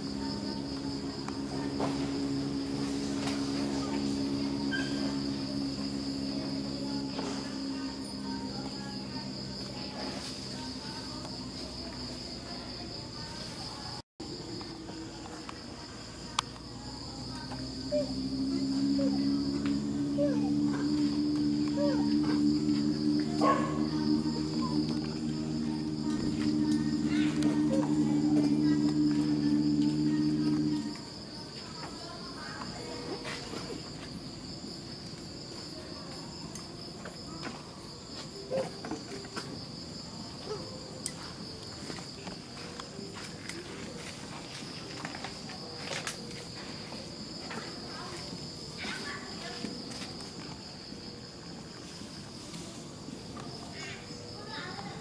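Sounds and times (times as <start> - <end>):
high-pitched insect buzzing: 0.0 - 12.2, 17.0 - 31.4
low steady hum: 16.6 - 31.1.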